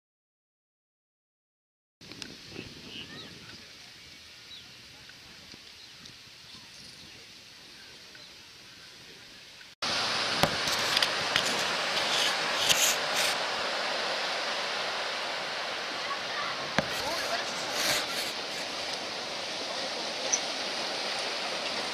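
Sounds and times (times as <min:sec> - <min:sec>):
faint outdoor background: 0:02.0 - 0:21.9
boat wake and motor rushing: 0:02.1 - 0:21.9
sharp knocks: 0:10.4 - 0:10.7.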